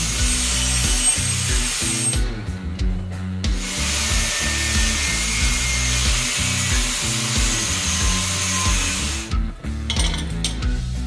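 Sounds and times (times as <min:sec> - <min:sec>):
angle grinder cutting steel: 0:00.0 - 0:02.3, 0:03.5 - 0:09.4
background music with beat: 0:00.0 - 0:11.0.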